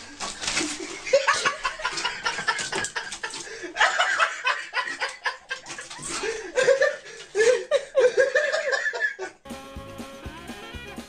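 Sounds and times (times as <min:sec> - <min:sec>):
person laughing: 0:00.8 - 0:09.4.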